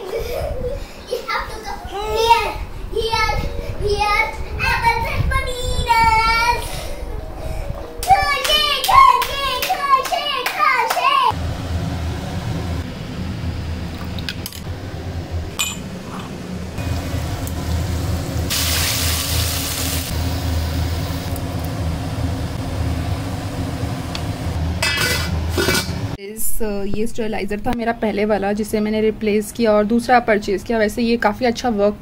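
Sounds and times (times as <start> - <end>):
low hum: 11.3 - 27.9
hot oil sizzling: 15.3 - 26.2.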